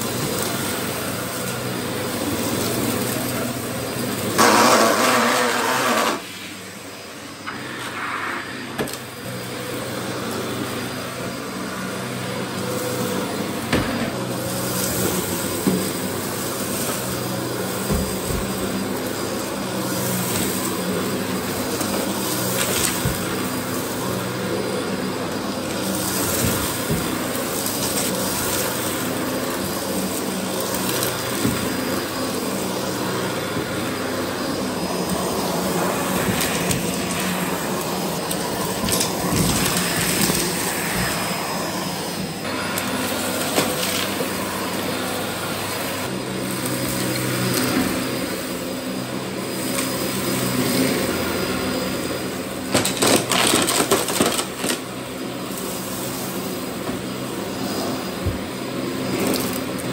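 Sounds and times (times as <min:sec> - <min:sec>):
debris crackling in vacuum: 0:00.0 - 0:59.9
upright vacuum cleaner running: 0:00.0 - 0:59.9.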